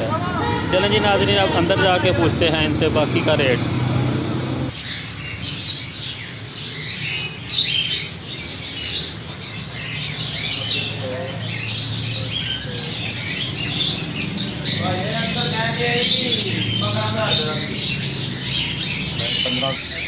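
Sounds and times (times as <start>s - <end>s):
parrots chirping and squawking: 0.0s - 20.0s.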